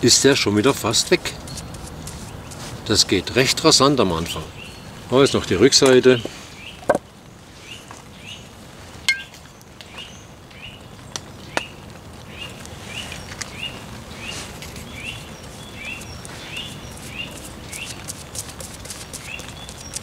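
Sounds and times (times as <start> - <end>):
rain pattering: 0.0 - 20.0
bird chirping: 4.2 - 6.9, 9.1 - 18.0, 19.0 - 20.0.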